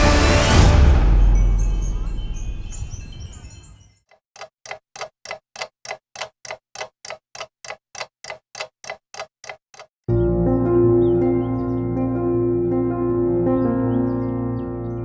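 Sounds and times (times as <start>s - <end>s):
background music: 0.0s - 2.2s, 10.1s - 15.0s
clock-like ticking: 4.1s - 10.1s.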